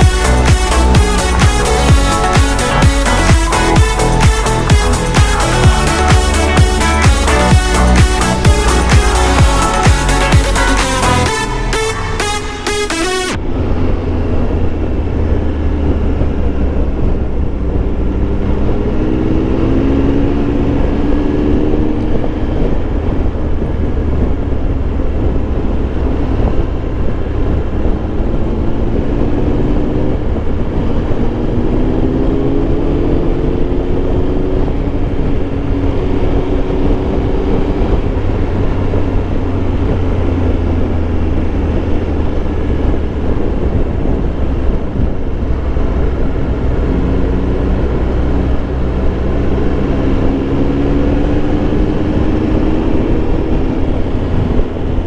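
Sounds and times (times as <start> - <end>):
motorcycle engine running: 0.0 - 12.6, 13.4 - 55.0
wind noise: 13.4 - 55.0.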